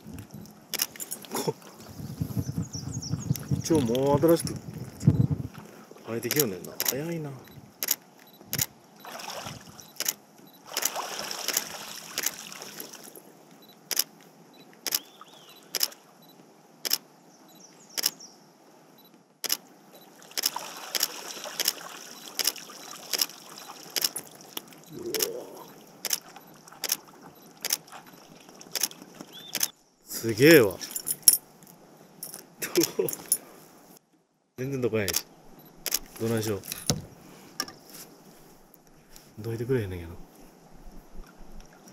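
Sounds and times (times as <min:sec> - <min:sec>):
wind and water hiss: 0:00.0 - 0:34.0, 0:34.6 - 0:41.9
camera shutter clicks: 0:07.8 - 0:08.7, 0:10.0 - 0:10.2, 0:10.8 - 0:12.4, 0:13.9 - 0:14.1, 0:14.8 - 0:15.1, 0:15.7 - 0:16.0, 0:16.8 - 0:17.0, 0:18.0 - 0:18.2, 0:19.4 - 0:19.6, 0:20.4 - 0:21.8, 0:22.4 - 0:23.3, 0:24.0 - 0:24.2, 0:26.0 - 0:26.2, 0:27.6 - 0:27.8, 0:28.8 - 0:29.7, 0:35.1 - 0:36.1.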